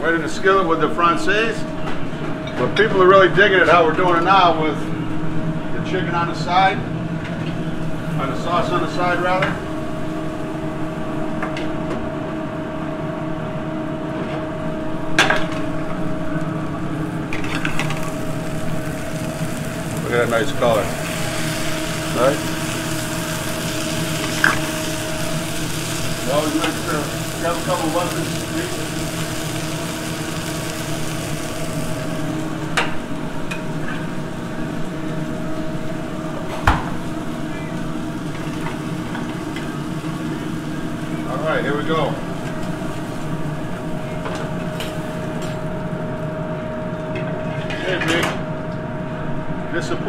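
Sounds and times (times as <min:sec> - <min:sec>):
kitchen equipment hum: 0:00.0 - 0:50.0
cutlets sizzling in a pan: 0:17.4 - 0:32.6.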